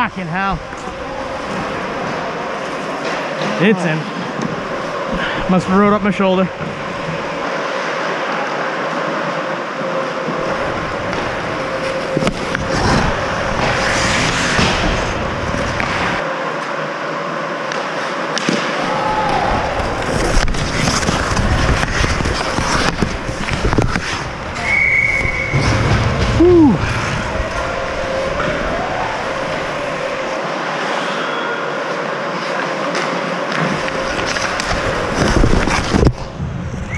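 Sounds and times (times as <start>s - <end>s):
steady hum: 0.0s - 36.9s
hockey sticks and puck clacking: 0.5s - 3.7s, 9.8s - 16.7s, 17.7s - 25.7s, 32.4s - 36.3s
skate blades scraping on ice: 9.9s - 16.2s, 17.8s - 28.3s, 32.3s - 36.3s.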